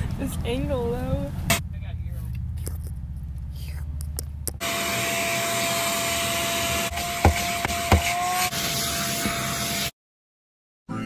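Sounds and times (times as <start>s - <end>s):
low rumble in moving car: 0.0s - 4.8s
shop vacuum whining: 4.6s - 9.9s.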